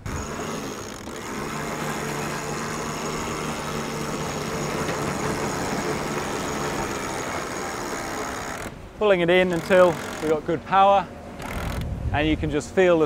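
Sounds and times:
electric winch motor hum: 0.0s - 8.7s, 9.4s - 10.4s, 11.2s - 11.9s.

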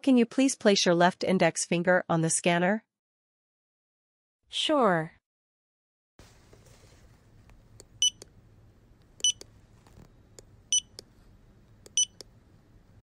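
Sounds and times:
short electronic beeps: 8.0s - 8.2s, 9.2s - 9.4s, 10.7s - 11.0s, 12.0s - 12.2s.

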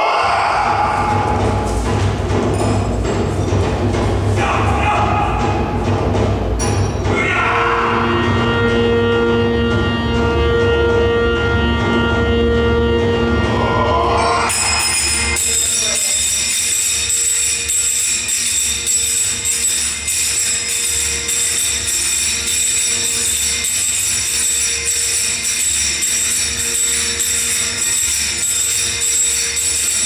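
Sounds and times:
jingling tambourine percussion: 0.0s - 10.8s, 13.4s - 30.0s
dance music with steady beat: 0.2s - 4.8s.

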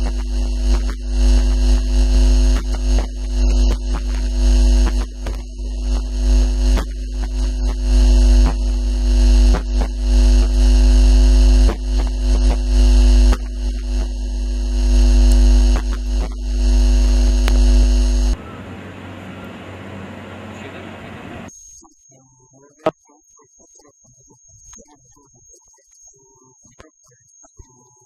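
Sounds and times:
loud electrical hum and buzz: 0.0s - 21.5s.

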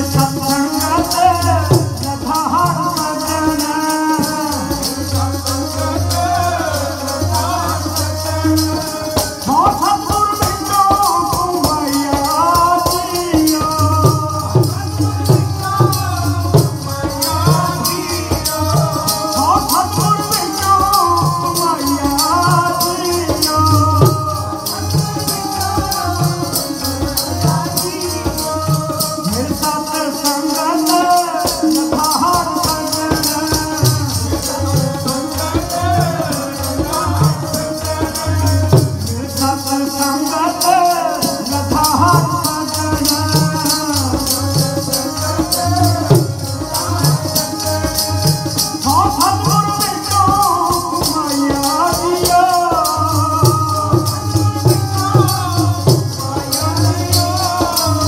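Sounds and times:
harmonium: 0.0s - 58.0s
man singing: 0.0s - 58.0s
tabla rhythm: 0.0s - 58.0s.

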